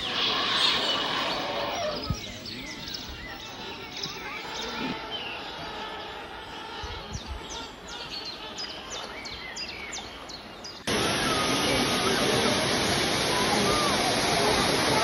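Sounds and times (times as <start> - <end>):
small birds chirping: 0.0 - 14.2
river flowing: 10.8 - 15.0
waterfall rushing: 10.9 - 15.0.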